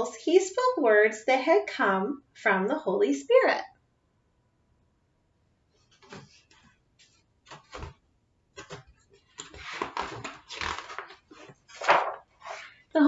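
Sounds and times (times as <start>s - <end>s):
book pages rustling: 5.7s - 12.9s.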